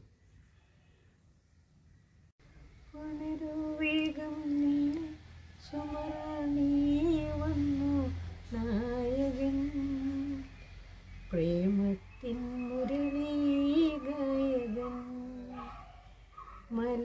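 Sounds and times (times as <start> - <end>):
woman singing: 3.0 - 10.5, 11.3 - 15.7, 16.7 - 17.0.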